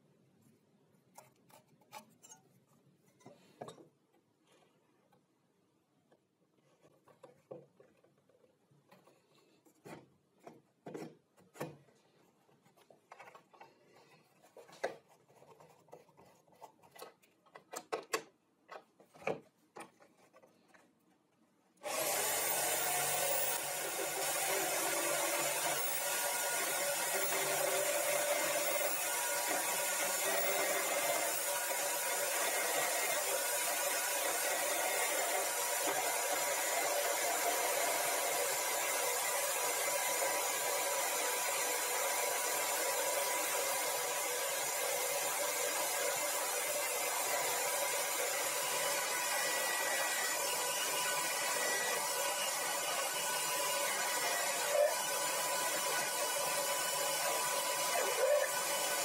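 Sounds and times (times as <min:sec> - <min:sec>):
electric drill running: 0:21.8 - 0:59.0.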